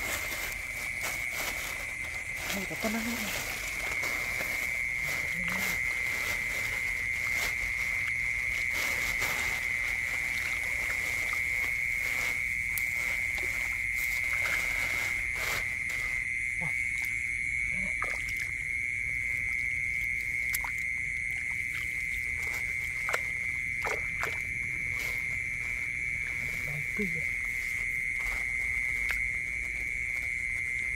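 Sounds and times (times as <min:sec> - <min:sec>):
night insects chirring: 0:00.0 - 0:30.9
hands splashing in muddy water: 0:20.2 - 0:24.6.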